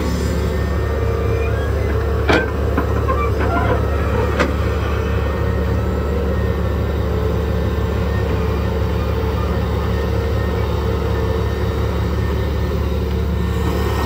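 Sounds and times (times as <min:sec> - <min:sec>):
excavator diesel engine droning: 0:00.0 - 0:14.0.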